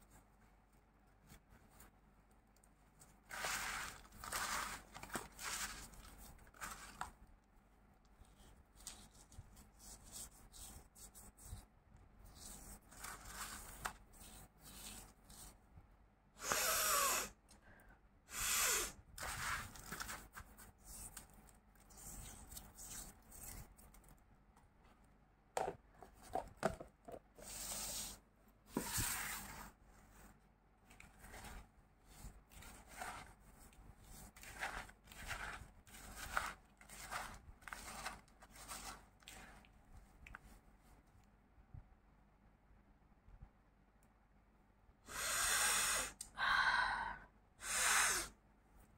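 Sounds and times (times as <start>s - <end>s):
plastic tub clicks and scrapes: 32.2s - 39.7s.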